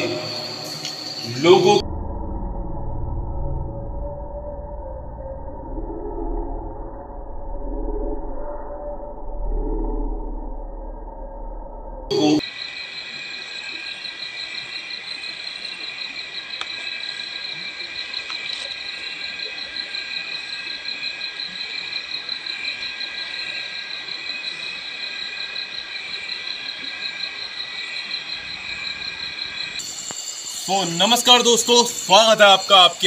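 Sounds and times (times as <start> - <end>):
crickets and insects trilling: 0.0 - 1.8, 12.1 - 33.0.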